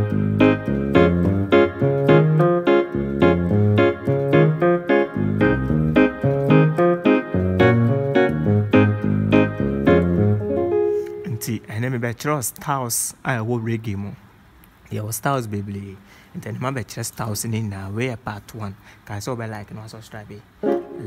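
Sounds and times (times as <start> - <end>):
stepping bass line: 0.0 - 10.9
keyboard playing reggae chords: 0.0 - 11.7, 20.5 - 21.0.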